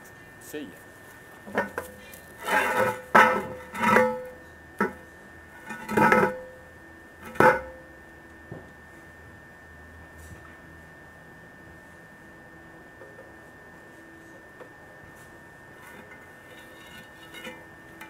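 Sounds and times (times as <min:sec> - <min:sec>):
metal clanks and scrapes: 0:01.5 - 0:05.0, 0:05.6 - 0:06.4, 0:15.2 - 0:18.0
metal hatch dragged on concrete: 0:15.9 - 0:17.6.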